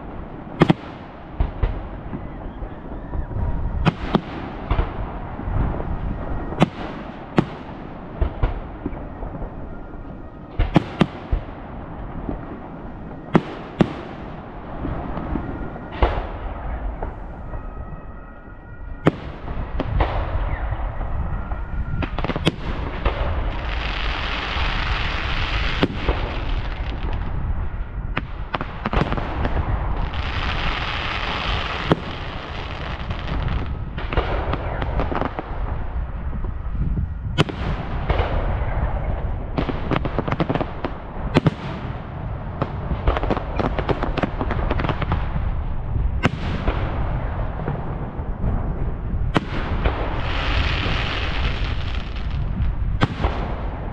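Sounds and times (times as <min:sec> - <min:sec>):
fireworks bangs: 0:00.0 - 0:53.9
fireworks rumble: 0:00.0 - 0:53.9
fireworks crackling: 0:19.0 - 0:36.7, 0:37.4 - 0:53.9.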